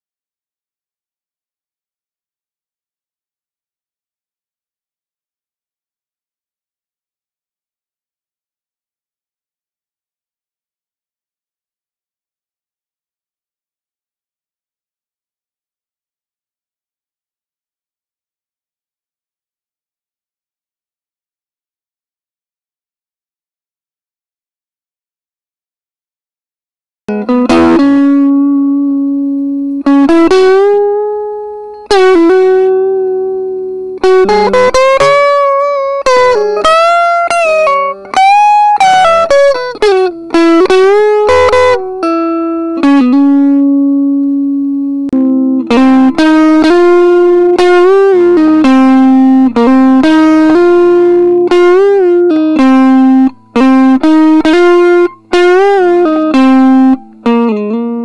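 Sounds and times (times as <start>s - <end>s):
electric guitar lead with string bends: 27.1s - 58.0s.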